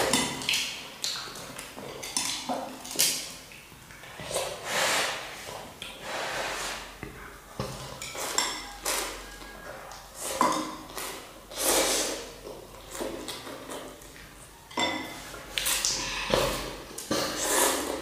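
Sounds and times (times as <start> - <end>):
child slurping noodles: 11.0 - 12.4, 15.6 - 18.0.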